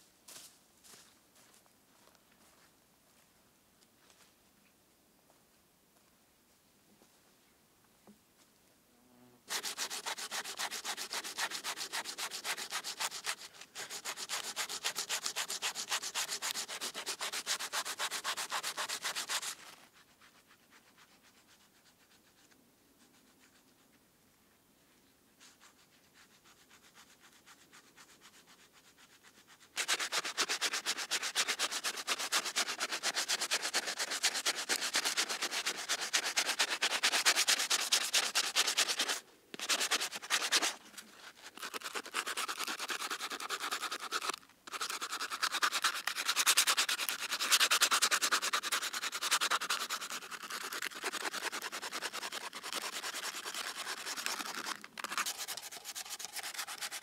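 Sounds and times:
hand sanding metal scraping: 0:09.5 - 0:21.4, 0:29.0 - 0:57.0.

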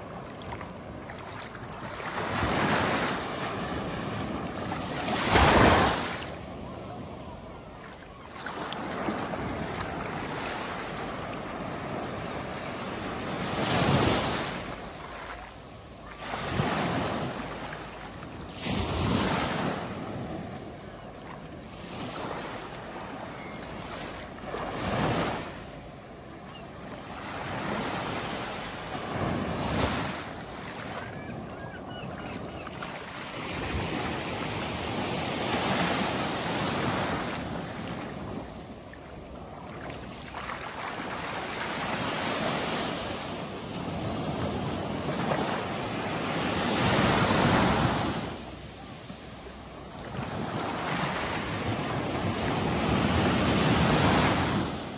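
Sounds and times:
waves breaking on sandy beach: 0:00.0 - 0:54.9.

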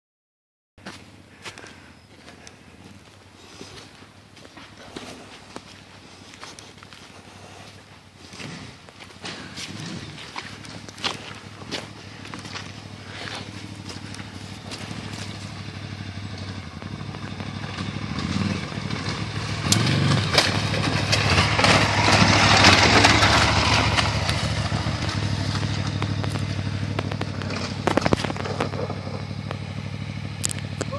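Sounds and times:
motorcycle riding over rocks: 0:08.1 - 0:30.9.

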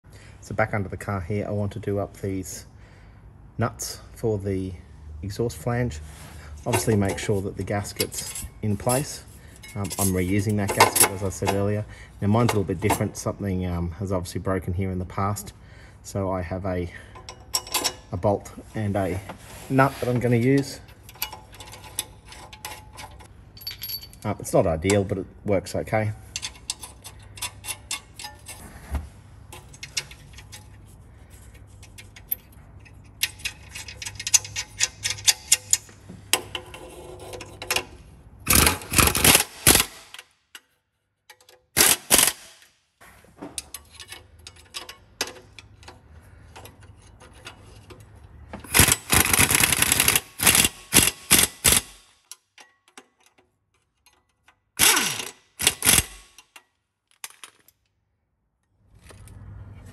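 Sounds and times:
socket ratchet clicking: 0:48.6 - 0:52.5, 0:54.8 - 0:56.6.

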